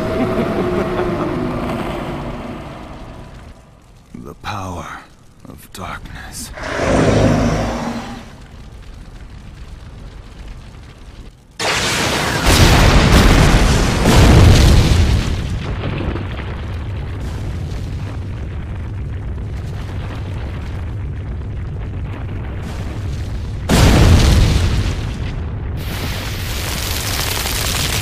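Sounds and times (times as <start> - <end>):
rubble falling rumble: 7.7 - 28.0
cartoon explosion blast: 11.6 - 16.1.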